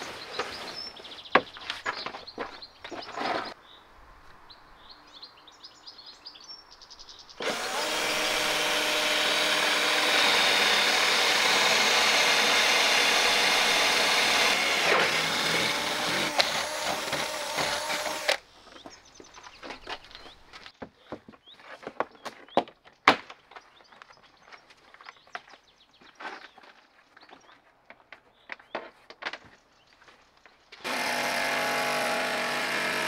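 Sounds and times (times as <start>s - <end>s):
cordless drill boring plywood: 7.4s - 18.4s, 30.8s - 33.0s.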